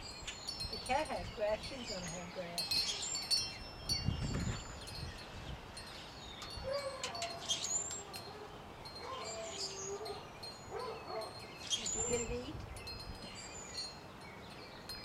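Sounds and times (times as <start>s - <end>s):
birds chirping: 0.0s - 15.0s
wind chimes ringing: 0.0s - 15.0s.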